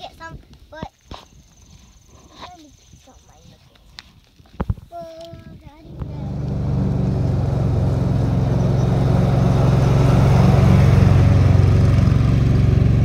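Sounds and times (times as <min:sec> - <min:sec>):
engine running: 0:05.8 - 0:13.0.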